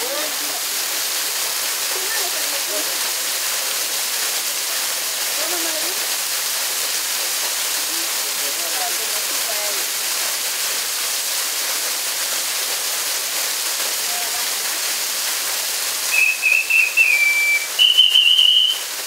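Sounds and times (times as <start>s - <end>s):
waterfall splashing onto rocks: 0.0s - 19.0s
high whistles: 16.1s - 19.0s.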